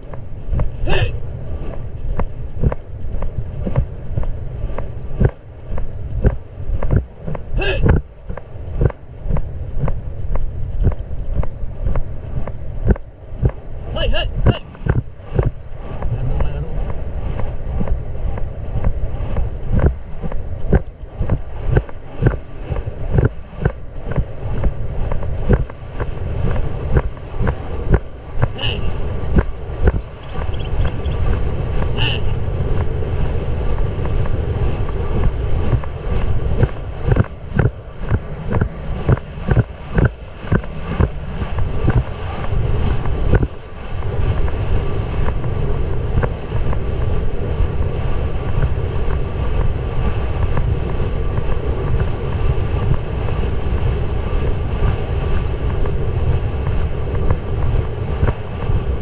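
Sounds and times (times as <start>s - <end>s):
horse hoofbeats on dirt: 0.0s - 32.0s, 35.2s - 42.2s
wind buffeting microphone: 0.0s - 59.0s.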